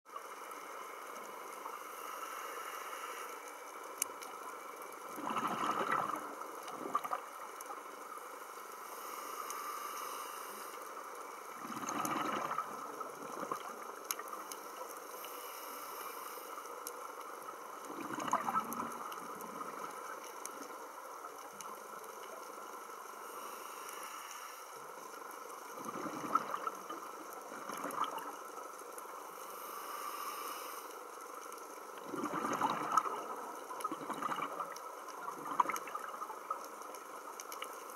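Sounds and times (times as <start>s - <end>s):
steady underwater hiss: 0.1s - 37.9s
bubbles gurgling underwater: 5.2s - 7.3s, 11.6s - 13.8s, 17.9s - 19.0s, 25.8s - 28.4s, 32.0s - 36.6s.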